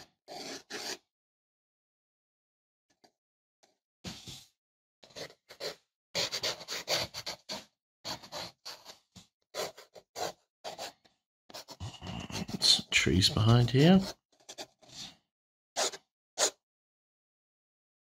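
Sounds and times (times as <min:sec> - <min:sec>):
pen scratching on paper: 0:00.0 - 0:01.1, 0:05.0 - 0:15.2, 0:15.8 - 0:16.6.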